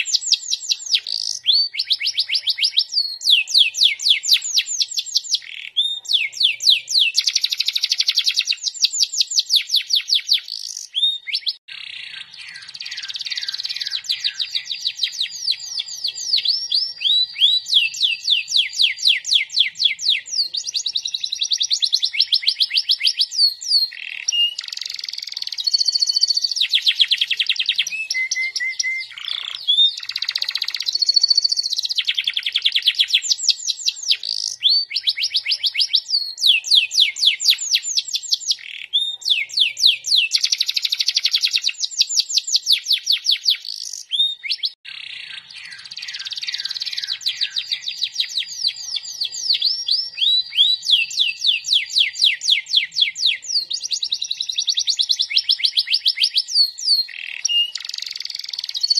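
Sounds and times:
canary singing trills: 0:00.0 - 0:58.9.

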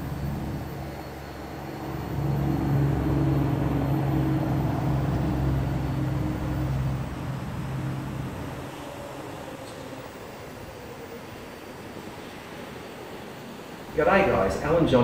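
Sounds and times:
vehicle engine running: 0:00.0 - 0:09.8.

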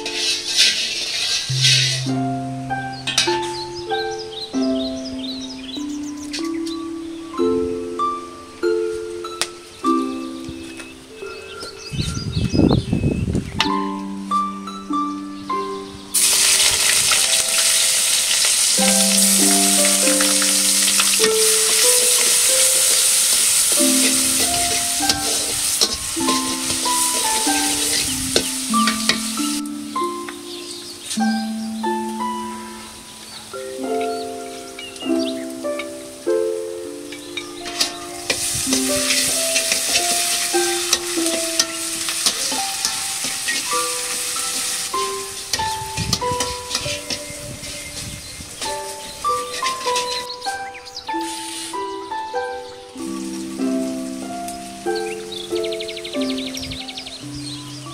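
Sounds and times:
food sizzling in hot oil: 0:00.0 - 0:02.0, 0:16.1 - 0:29.8, 0:37.7 - 0:50.3, 0:51.2 - 0:51.8
soft keyboard melody: 0:00.0 - 0:57.9.

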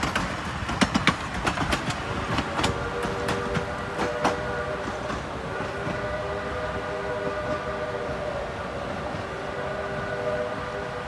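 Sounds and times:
train cars rumbling on rails: 0:00.0 - 0:11.0.

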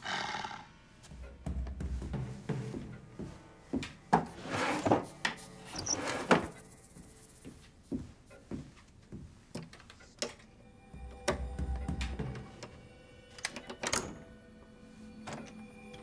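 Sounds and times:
quiet background music: 0:00.0 - 0:16.0
soft footsteps: 0:00.9 - 0:10.2.

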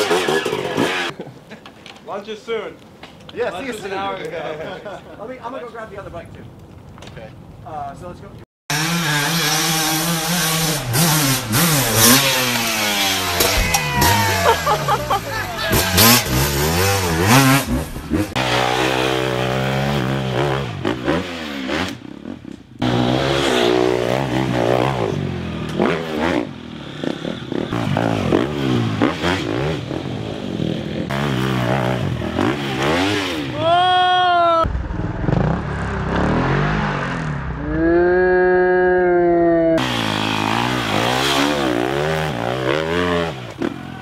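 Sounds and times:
dirt bike engines revving: 0:00.0 - 0:01.4, 0:08.7 - 0:44.0.

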